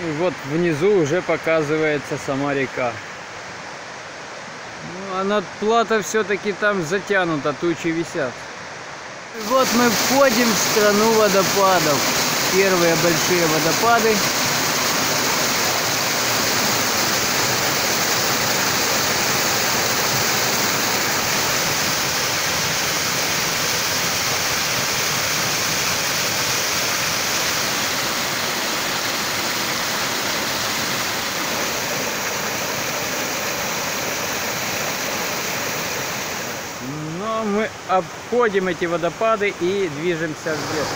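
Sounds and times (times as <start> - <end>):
waterfall splashing onto stones: 9.4 - 36.9.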